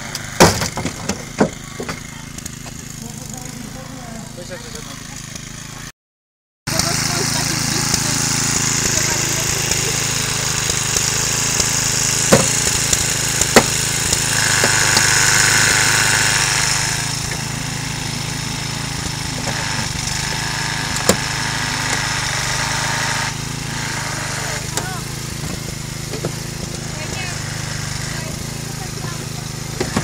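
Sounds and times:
hydraulic power unit engine running: 0.0 - 5.9, 6.7 - 30.0
sharp metallic cracks: 6.7 - 28.6
high whine of hydraulic tool: 6.7 - 30.0.

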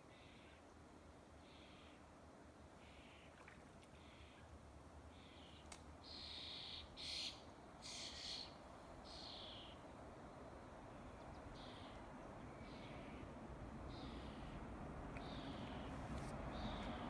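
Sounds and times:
short high-pitched bird calls: 5.3 - 8.5.

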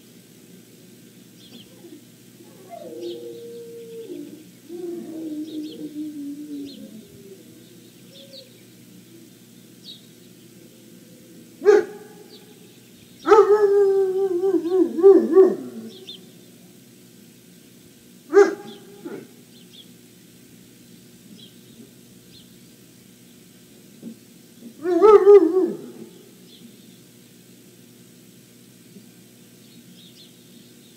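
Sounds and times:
puppy calling: 1.6 - 8.6.

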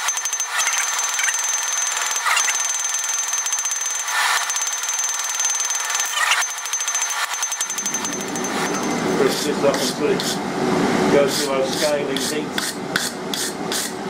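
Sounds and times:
high metallic ring: 6.0 - 9.4
hammer striking metal on anvil: 7.8 - 9.2.

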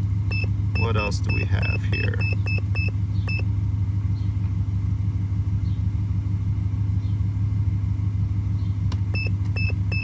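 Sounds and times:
car engine idling: 0.0 - 10.0.

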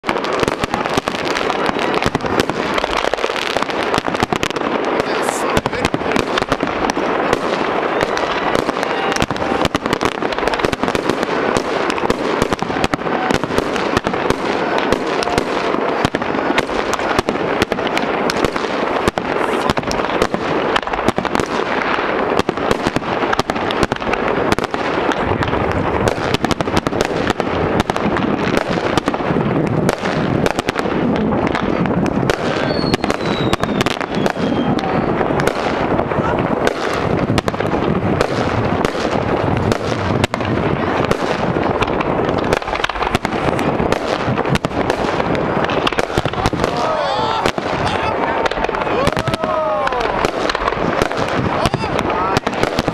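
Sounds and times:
fireworks bangs and crackling: 0.0 - 52.9
falling firework whistle: 32.3 - 35.6, 48.8 - 50.5.

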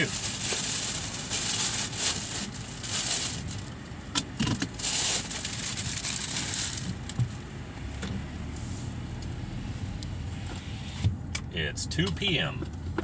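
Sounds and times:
plastic bag rustling: 0.0 - 3.8, 4.5 - 7.1.

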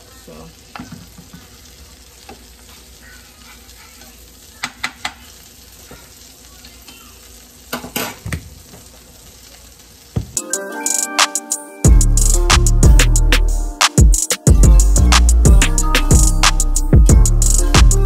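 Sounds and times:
eggs sizzling in a skillet: 0.0 - 10.7.

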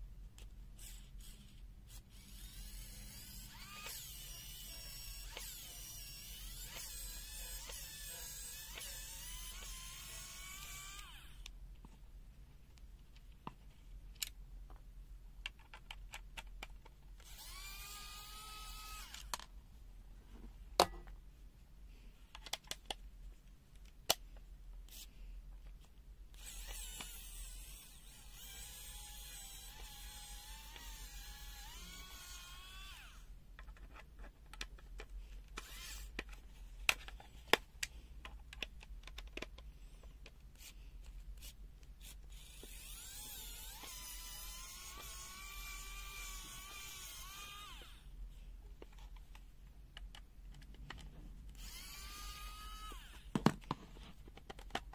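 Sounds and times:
electric screwdriver whirring: 2.1 - 11.4, 17.2 - 19.3, 26.4 - 33.2, 35.6 - 36.1, 42.3 - 48.0, 51.5 - 53.2
clicks and taps of plastic parts: 22.3 - 23.0, 33.6 - 35.6, 36.2 - 40.4, 48.8 - 51.1, 53.3 - 54.9.

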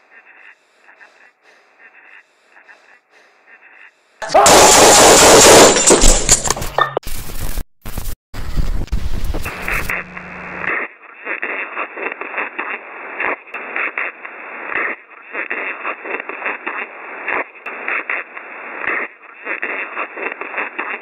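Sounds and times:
crackling telephone line static: 0.0 - 5.6, 7.1 - 21.0
low hum: 8.4 - 10.7.

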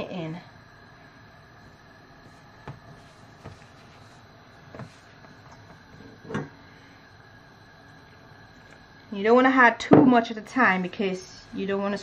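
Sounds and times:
hands kneading dough in a bowl: 1.7 - 6.0.

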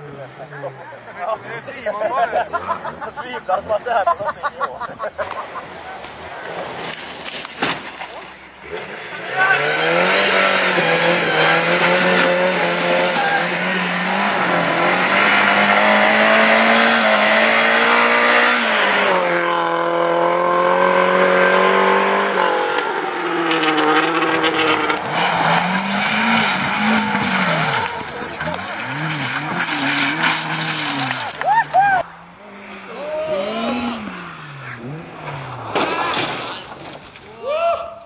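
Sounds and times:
rally car engine revving: 8.3 - 37.1.

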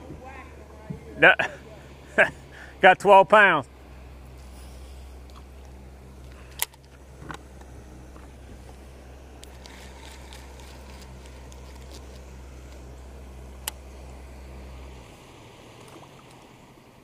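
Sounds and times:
electric motor humming: 3.7 - 17.0.

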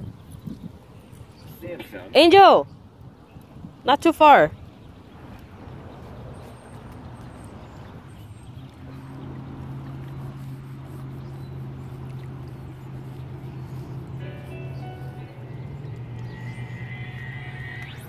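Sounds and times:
motorboat engine drone: 5.7 - 18.0.

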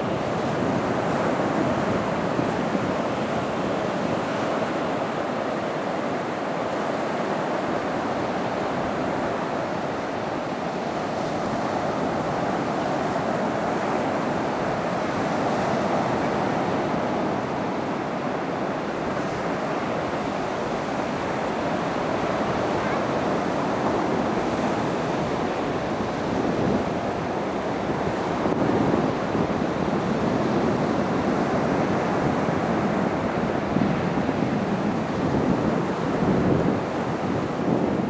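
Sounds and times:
waves rushing on beach: 0.0 - 38.0
wind on microphone: 0.0 - 38.0.

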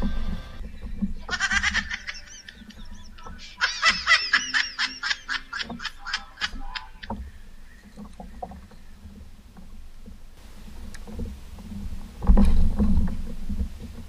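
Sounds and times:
water slapping kayak hull: 0.0 - 14.0.

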